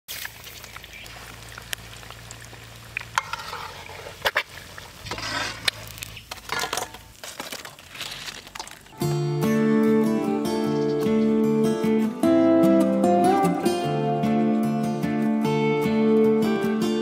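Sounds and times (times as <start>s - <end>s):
food sizzling in hot oil: 0.1s - 7.2s.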